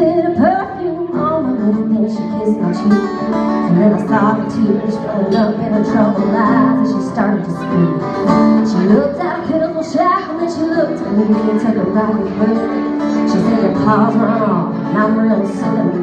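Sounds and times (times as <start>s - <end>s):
person singing: 0.0s - 16.0s
strummed acoustic guitar: 0.0s - 16.0s.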